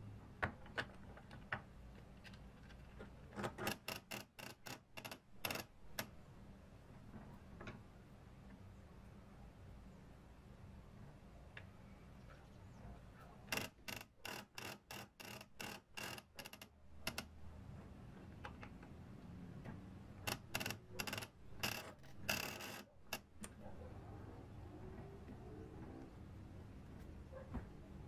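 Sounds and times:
gear mechanism clicking: 20.3 - 23.5.

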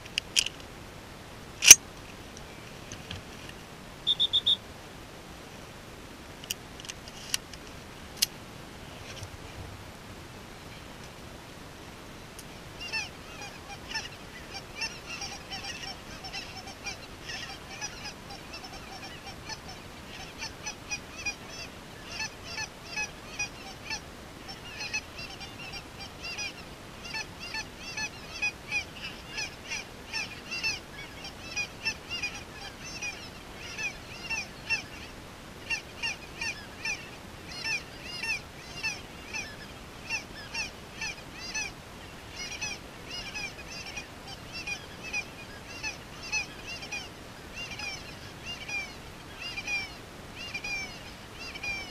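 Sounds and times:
geese honking: 4.1 - 4.6, 12.8 - 51.9.

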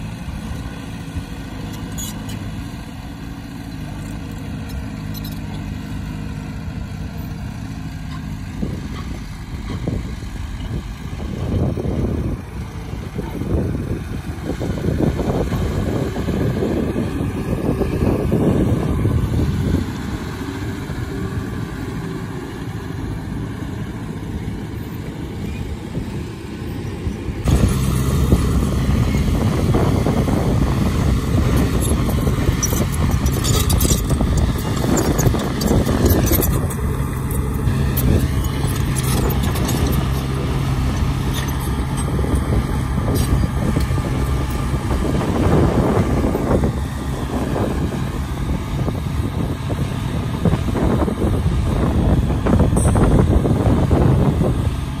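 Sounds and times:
diesel engines running: 0.0 - 55.0
rattles: 31.3 - 45.1.

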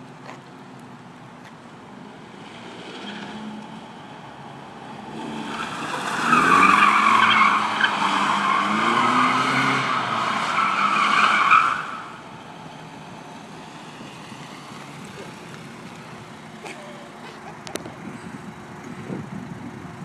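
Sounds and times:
car engine revving: 4.8 - 16.9.

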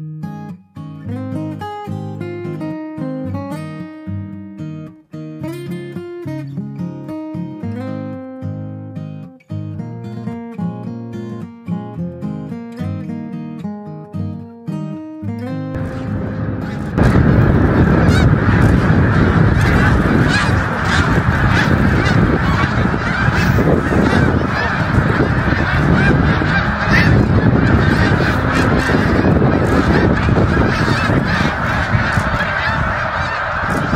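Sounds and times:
flock of geese honking: 15.8 - 33.9.

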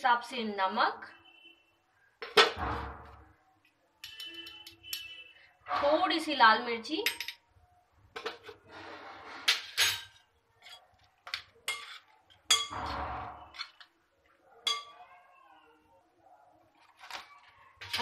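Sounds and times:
spoon clinking on glass bowl: 11.7 - 12.8, 14.7 - 15.0.

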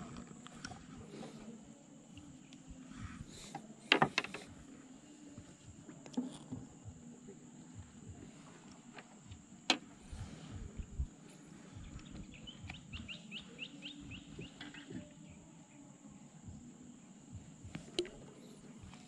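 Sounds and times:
high insect drone: 0.0 - 19.0
low rumbling noise: 9.3 - 13.1
bird chirping: 11.8 - 15.5.

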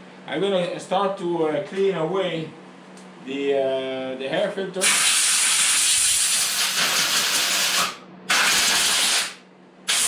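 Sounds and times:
compressed air blow gun hissing: 4.8 - 10.0.

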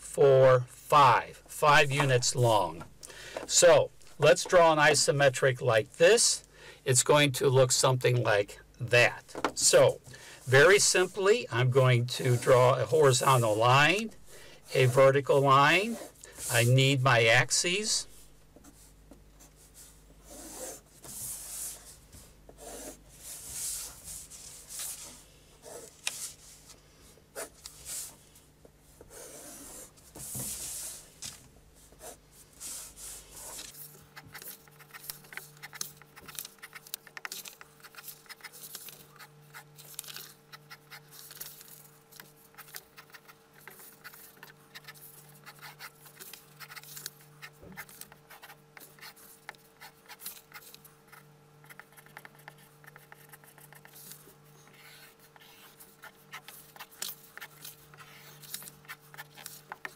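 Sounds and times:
pencil scratching on paper: 12.2 - 16.7, 19.4 - 26.4, 29.0 - 31.1, 31.8 - 59.9.

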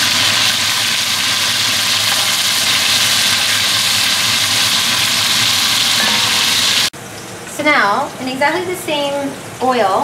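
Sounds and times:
meat sizzling in hot oil: 0.0 - 6.9.

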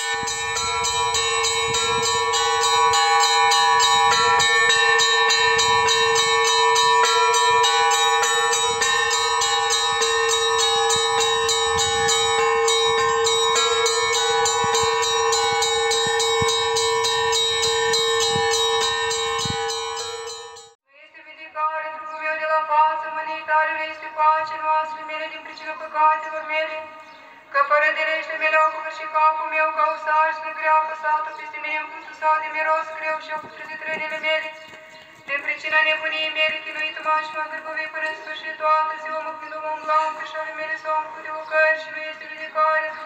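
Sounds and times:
deep bell ringing tone: 0.0 - 20.8
small bells rapid peal: 0.0 - 20.8.

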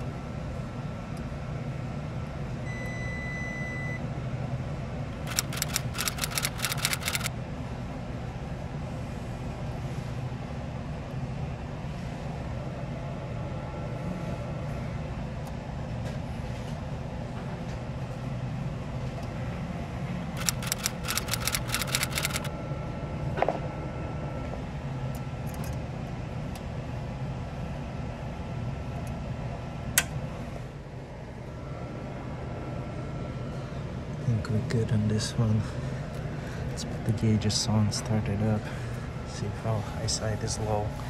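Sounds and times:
low machine hum: 0.0 - 41.0
quick metal clicks: 5.2 - 7.3, 20.4 - 22.5.

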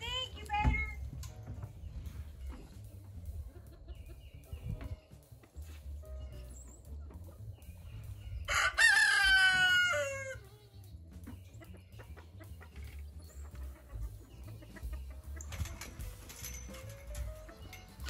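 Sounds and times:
rooster crowing: 8.5 - 10.4.

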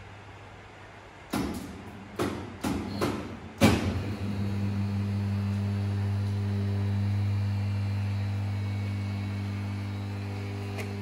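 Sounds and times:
sharp mechanical knocks: 1.3 - 4.0
electric motor hum: 3.9 - 11.0.

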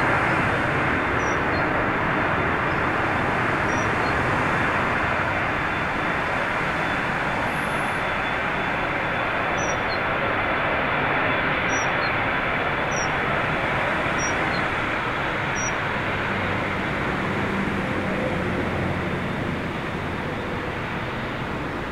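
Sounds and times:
gusty wind: 0.0 - 11.5
jet engines roaring: 0.0 - 21.9.

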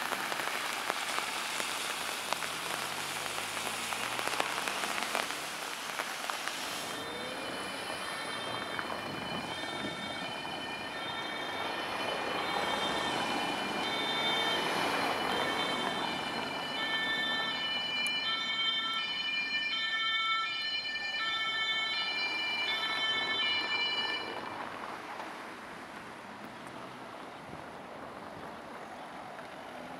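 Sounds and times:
traffic noise: 0.0 - 29.9
two-tone police siren: 1.6 - 5.7, 6.8 - 24.9.

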